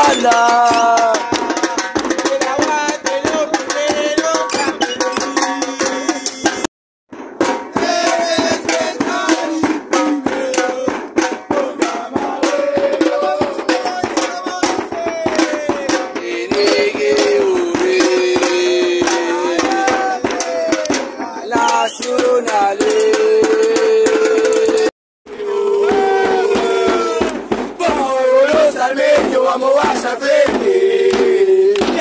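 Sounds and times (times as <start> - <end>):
drums beating fast: 0.0 - 32.0
fans chanting: 7.8 - 32.0.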